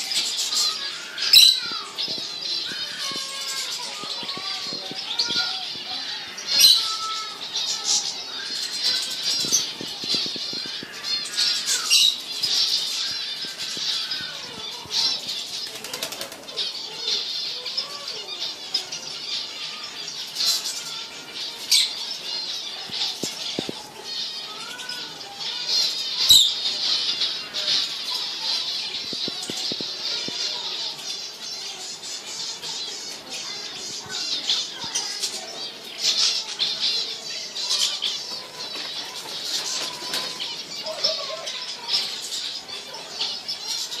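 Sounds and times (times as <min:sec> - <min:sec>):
finches chirping and twittering: 0:00.0 - 0:44.0
wings fluttering: 0:07.7 - 0:16.7, 0:27.4 - 0:30.4.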